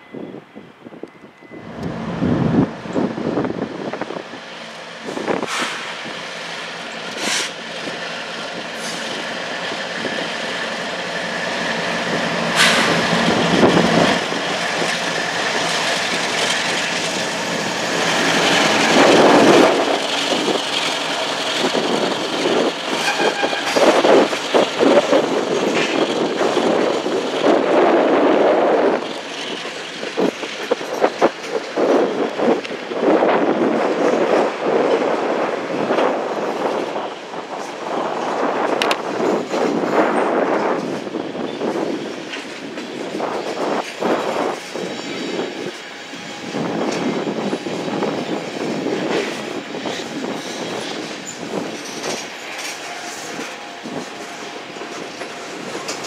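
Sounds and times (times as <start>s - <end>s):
diesel locomotives passing: 0.0s - 56.0s
train wheels clattering over joints: 36.0s - 56.0s.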